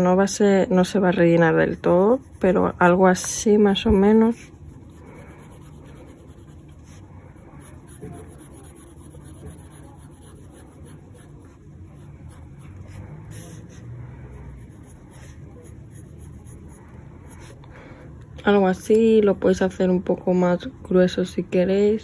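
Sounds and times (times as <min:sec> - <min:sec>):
pencil scratching on paper: 0:01.4 - 0:17.6.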